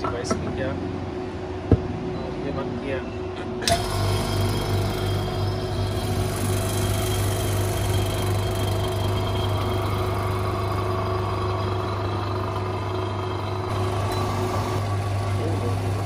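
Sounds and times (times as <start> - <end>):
vacuum pump humming: 3.6 - 16.0.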